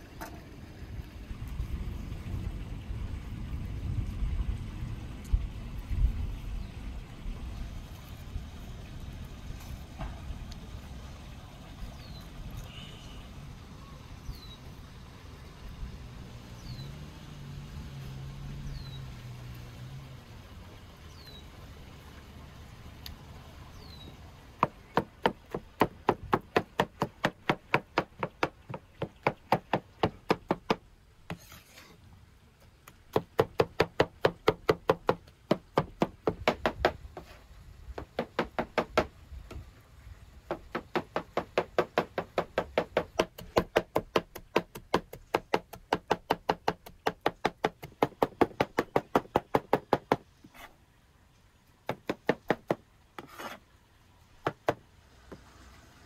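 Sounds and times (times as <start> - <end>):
cleaver chopping on wooden board: 24.6 - 31.4, 33.1 - 37.0, 38.0 - 39.1, 40.5 - 50.2, 51.9 - 53.6.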